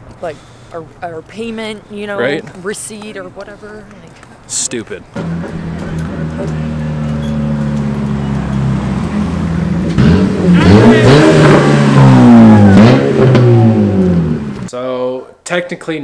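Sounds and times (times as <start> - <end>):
car engine revving: 5.1 - 14.7.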